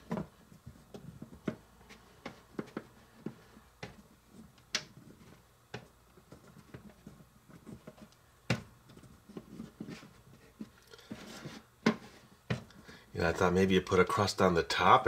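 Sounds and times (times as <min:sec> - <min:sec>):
rolling pin rubbing over bread: 0:08.9 - 0:12.7.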